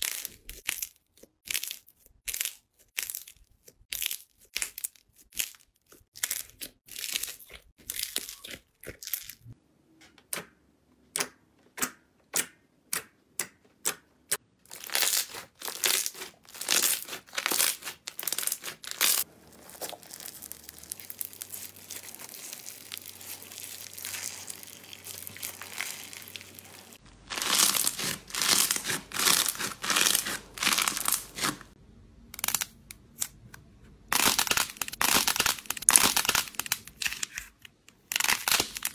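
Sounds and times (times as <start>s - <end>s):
squishy toys crackling and crunching: 0.0s - 9.6s, 14.6s - 31.8s, 34.1s - 38.9s
fine steady crackle: 19.1s - 27.3s.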